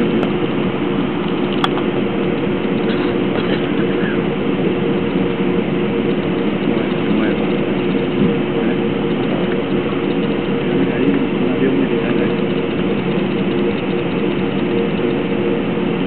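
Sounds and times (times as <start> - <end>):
jet engines droning in cabin: 0.0 - 16.0.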